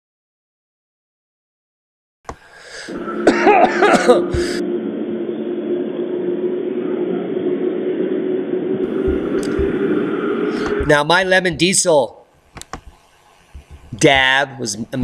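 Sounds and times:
steady hum: 2.3s - 15.0s
man coughing: 3.2s - 4.6s.

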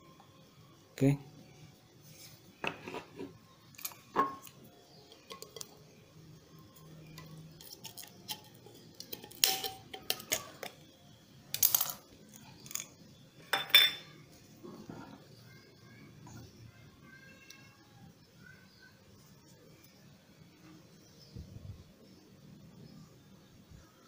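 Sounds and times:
metal tin clinking: 3.8s - 5.8s, 7.0s - 10.8s, 11.5s - 12.9s, 13.5s - 14.1s.

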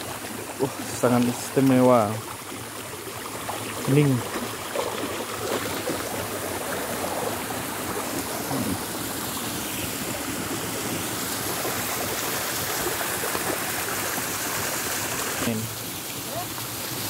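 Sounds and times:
stream rushing over rocks: 0.0s - 17.0s.

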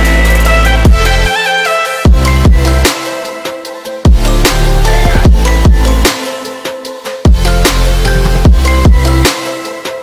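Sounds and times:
heavy electronic bass line: 0.0s - 1.4s, 2.1s - 2.9s, 4.1s - 6.2s, 7.3s - 9.3s.

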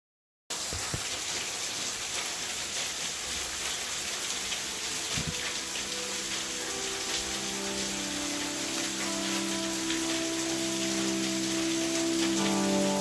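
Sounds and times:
rain falling: 0.5s - 13.0s
faint sustained musical notes: 4.5s - 13.0s.

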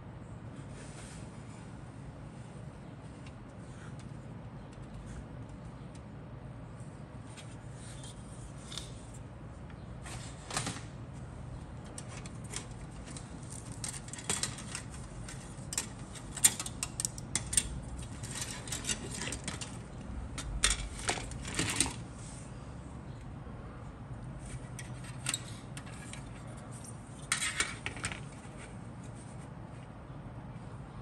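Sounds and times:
faint steady hum: 0.0s - 31.0s
plastic parts clicking and rattling: 11.8s - 22.0s.

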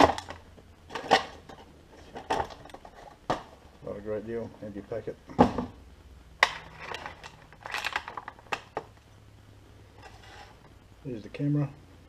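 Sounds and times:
plastic packaging crackling: 6.4s - 8.9s.

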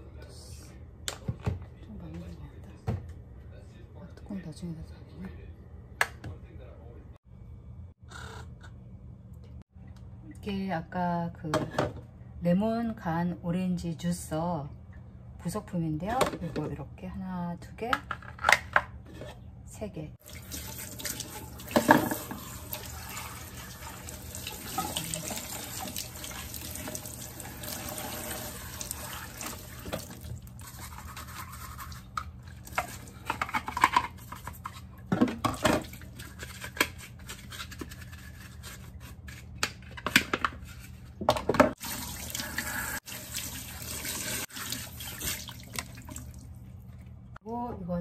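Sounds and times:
plastic parts knocking in sink: 21.7s - 22.5s.

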